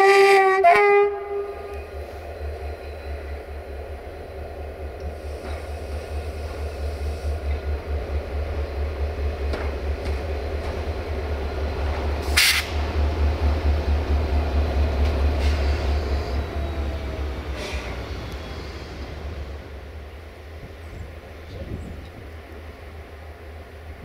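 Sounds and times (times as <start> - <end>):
diesel locomotive engine rumble: 0.0 - 24.0
sharp hiss: 5.0 - 7.6, 12.1 - 12.9.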